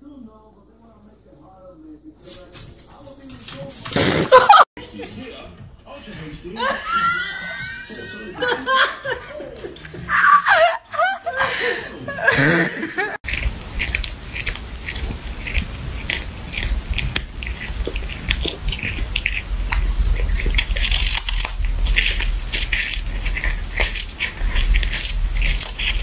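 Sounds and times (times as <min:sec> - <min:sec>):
cat crunching a hard treat: 0:13.2 - 0:26.0.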